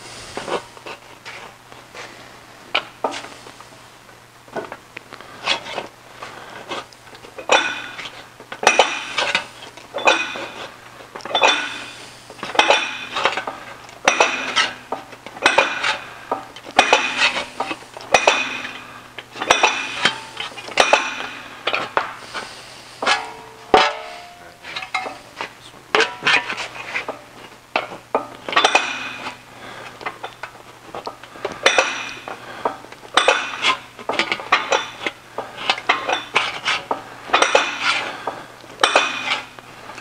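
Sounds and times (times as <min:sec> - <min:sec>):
metallic clanks with bright ring: 0:11.3 - 0:11.9, 0:12.6 - 0:13.5, 0:14.1 - 0:14.8, 0:18.1 - 0:21.5, 0:23.0 - 0:25.2, 0:28.2 - 0:29.4, 0:38.8 - 0:39.4.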